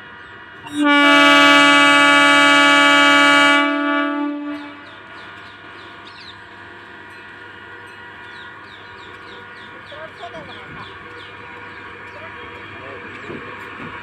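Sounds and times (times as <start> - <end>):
train running slowly: 0.0 - 14.0
train horn blast: 0.6 - 5.2
small birds chirping: 4.8 - 6.5, 8.2 - 12.8.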